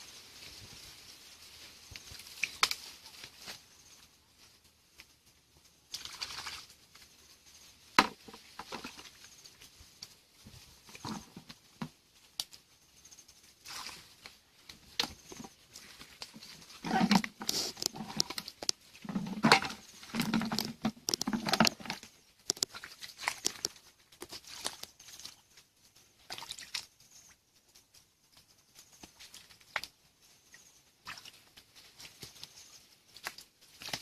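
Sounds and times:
splashing in muddy water: 5.9s - 7.0s, 8.0s - 9.4s, 13.6s - 27.0s, 31.0s - 32.5s, 33.1s - 34.0s
sharp clicks and crackles: 14.2s - 25.2s.

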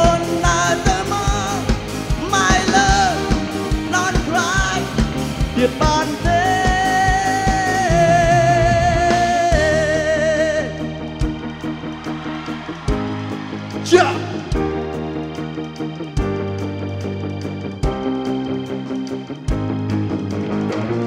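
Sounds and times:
man singing a pop ballad: 0.0s - 11.0s, 13.8s - 14.5s
band backing track with drums: 0.0s - 21.0s.

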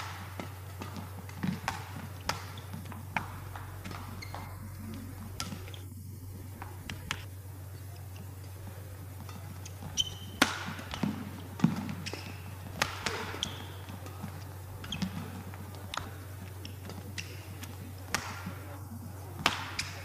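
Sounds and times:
footfalls on court floor: 0.0s - 5.8s, 8.7s - 20.0s
rackets striking shuttlecock: 0.0s - 5.8s, 6.6s - 18.7s, 19.3s - 20.0s
steady low hum: 0.0s - 20.0s
shoe squeaks: 2.2s - 5.9s, 9.6s - 10.4s, 11.9s - 13.8s, 14.8s - 15.5s.

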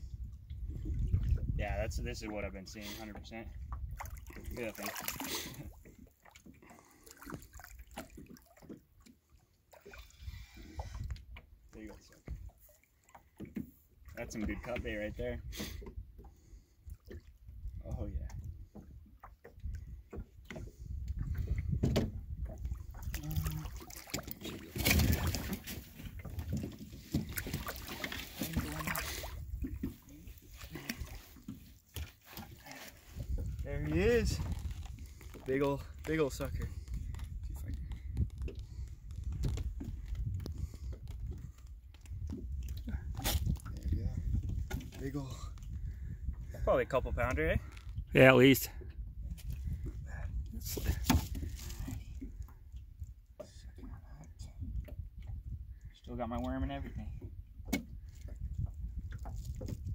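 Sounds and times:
water sloshing: 0.5s - 46.9s
fish splashing in water: 22.8s - 30.1s.

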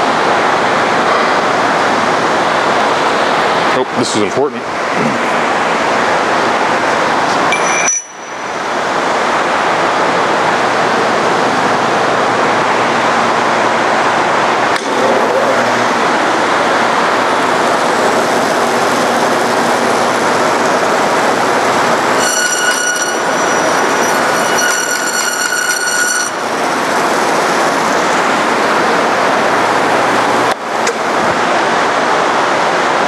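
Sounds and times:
high whine of blade cutting: 7.5s - 9.6s, 14.7s - 30.6s
bandsaw running: 15.0s - 30.6s.

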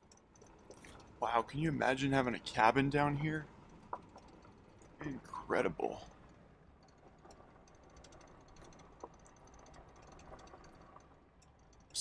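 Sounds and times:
soft ticks: 0.0s - 1.5s, 2.1s - 12.0s.

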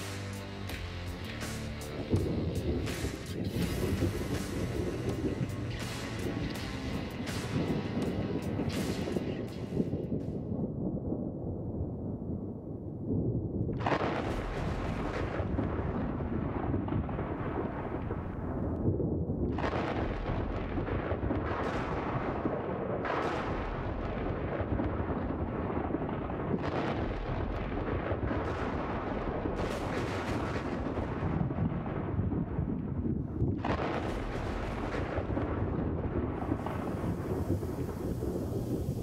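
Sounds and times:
low rumble: 0.6s - 23.0s, 30.7s - 39.0s
booming thunder sound effects: 2.0s - 39.0s.

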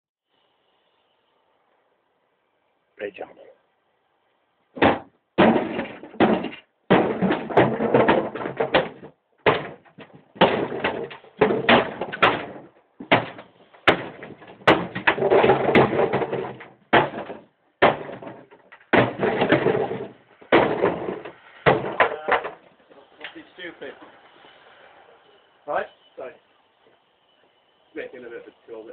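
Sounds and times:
hammer smashing cardboard boxes: 4.8s - 22.6s.

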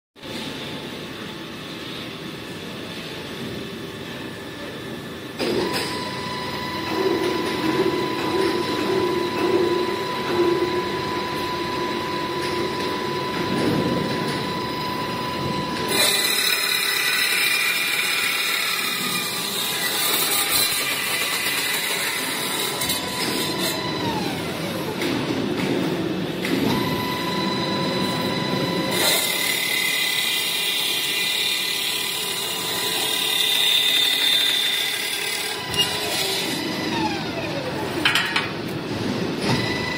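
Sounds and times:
circular saw whine: 0.2s - 25.3s, 26.3s - 38.1s
saw blade cutting metal: 14.4s - 24.2s, 28.7s - 37.0s.

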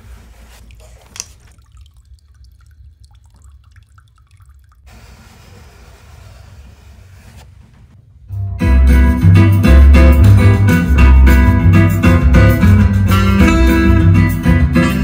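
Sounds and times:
brush swishing on speaker cone: 0.0s - 1.6s, 5.1s - 7.8s
glue bottle wet ticks: 0.6s - 3.8s.

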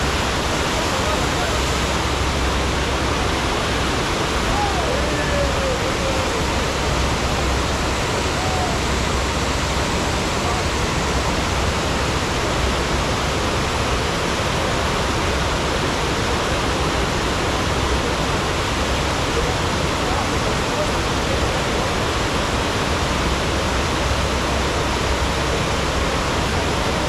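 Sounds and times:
rushing water: 0.0s - 27.0s
faint voice: 3.1s - 9.3s.

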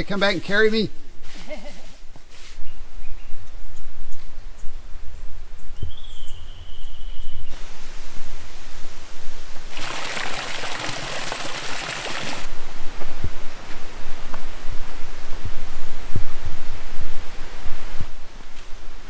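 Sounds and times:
wind rumble on microphone: 2.6s - 19.0s
loud steady rushing hiss: 7.4s - 19.0s.

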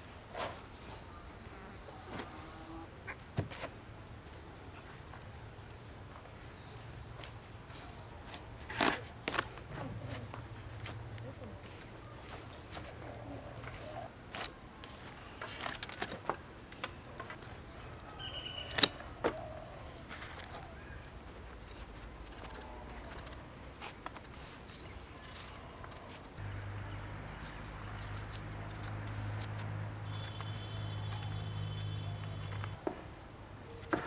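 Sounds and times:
knife scraping melon rind: 8.2s - 11.2s, 21.6s - 26.3s, 27.2s - 32.7s.

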